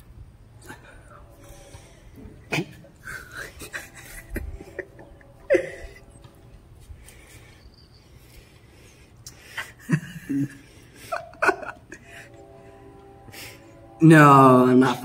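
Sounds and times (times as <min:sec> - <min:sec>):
faint low rumble: 0:00.0 - 0:09.2
background hiss: 0:00.0 - 0:15.0.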